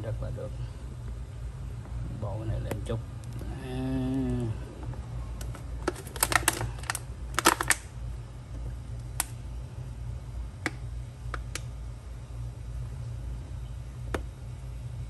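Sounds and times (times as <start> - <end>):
steady low hum: 0.0 - 15.0
plastic bottle crackling and clicking: 5.4 - 7.9.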